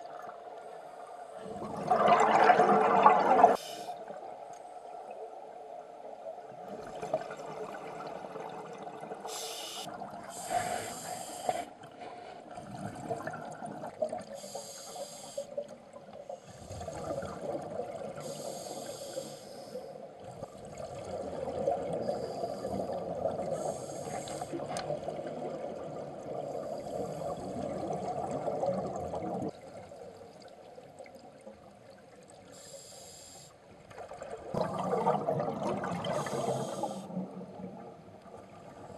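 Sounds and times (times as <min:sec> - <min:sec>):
bubbling of exhaled air: 0:01.4 - 0:03.6, 0:34.5 - 0:37.8
regulator hissing inhalations: 0:03.6 - 0:04.0, 0:09.3 - 0:12.4, 0:14.4 - 0:15.6, 0:18.2 - 0:20.0, 0:22.0 - 0:23.0, 0:23.6 - 0:24.6, 0:32.5 - 0:33.6, 0:36.1 - 0:37.2.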